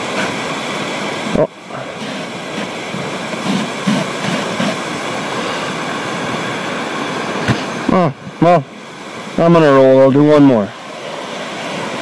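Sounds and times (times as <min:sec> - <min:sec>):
spray foam gun hissing: 0:02.0 - 0:02.7, 0:03.4 - 0:04.9.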